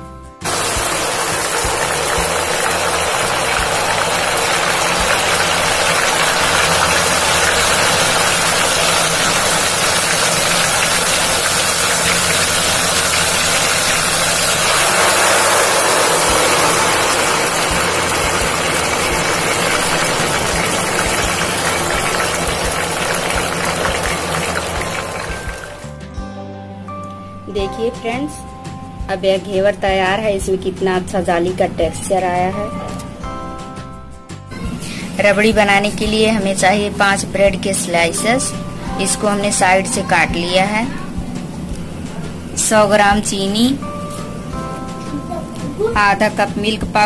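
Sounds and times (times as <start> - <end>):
batter sizzling in hot fat: 0.4 - 26.0.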